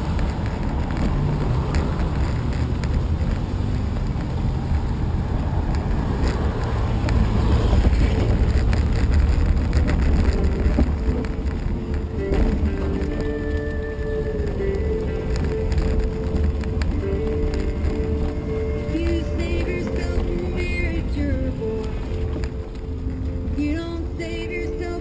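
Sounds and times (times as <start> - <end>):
wheels rumbling on pavement: 0.0 - 25.0
wind buffeting microphone: 0.0 - 25.0.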